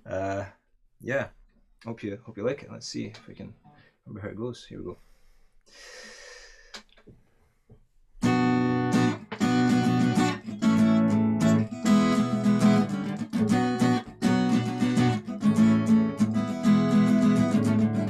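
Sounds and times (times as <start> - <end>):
guitar playing chords: 8.2 - 18.0.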